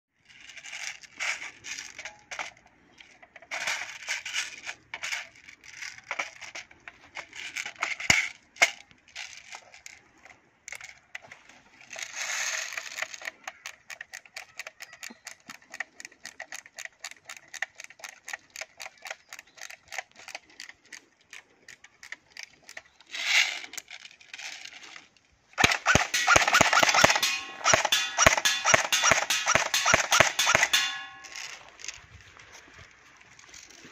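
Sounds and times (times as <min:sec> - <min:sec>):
airsoft gun rattling and clattering: 0:00.2 - 0:33.9
sharp airsoft shots: 0:25.6 - 0:31.2
quick ratchet clicks: 0:25.6 - 0:31.6.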